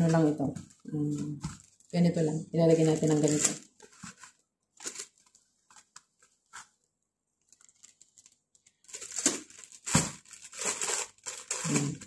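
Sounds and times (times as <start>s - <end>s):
plastic bag rustling and crinkling: 0.0s - 12.0s.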